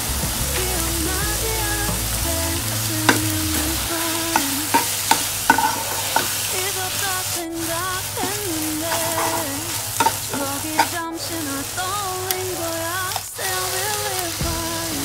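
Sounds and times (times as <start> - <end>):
background music: 0.0 - 15.0
food sizzling in a frying pan: 0.6 - 15.0
spatula scraping a pan: 4.4 - 6.6, 8.2 - 11.0.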